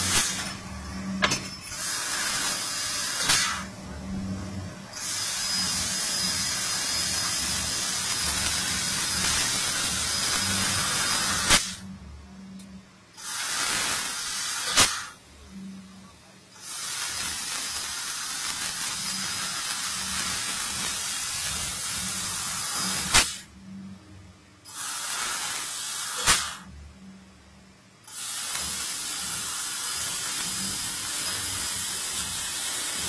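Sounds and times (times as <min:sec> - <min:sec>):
assist gas hissing: 0:00.0 - 0:00.6, 0:01.7 - 0:03.7, 0:04.9 - 0:11.8, 0:13.2 - 0:15.2, 0:16.6 - 0:23.5, 0:24.7 - 0:26.7, 0:28.1 - 0:33.0
low machine hum: 0:00.0 - 0:01.8, 0:03.0 - 0:13.2, 0:15.2 - 0:16.6, 0:23.5 - 0:24.7, 0:26.7 - 0:28.1.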